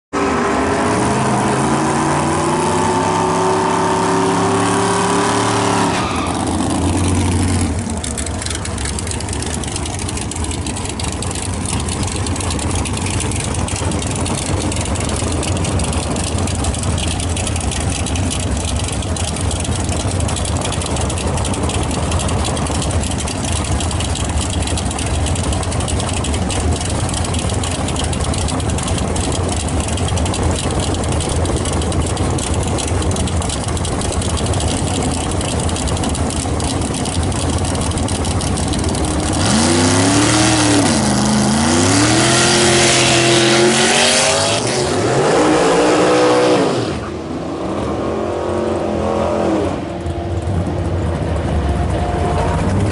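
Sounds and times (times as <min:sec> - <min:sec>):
drag car engine revving: 0:00.1 - 0:52.9
rough lopey engine idle: 0:06.2 - 0:44.9, 0:49.9 - 0:52.9.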